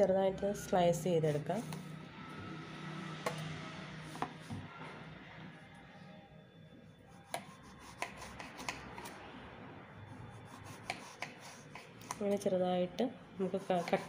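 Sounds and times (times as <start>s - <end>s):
knife slicing eggplant: 7.1s - 9.2s, 10.5s - 12.3s, 13.5s - 14.0s.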